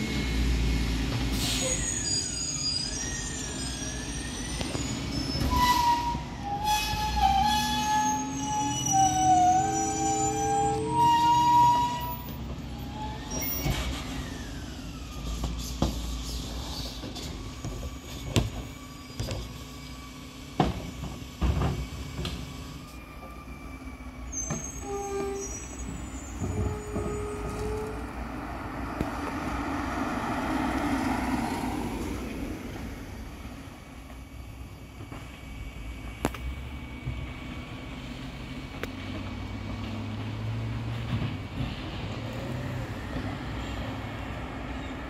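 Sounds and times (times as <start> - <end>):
brief squeals: 1.3 - 20.2, 22.5 - 28.3.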